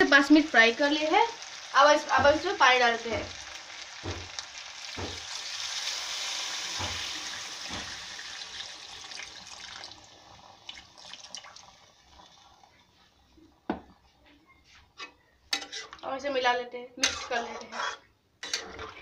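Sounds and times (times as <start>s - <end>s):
water splashing into frying pan: 0.0s - 13.0s.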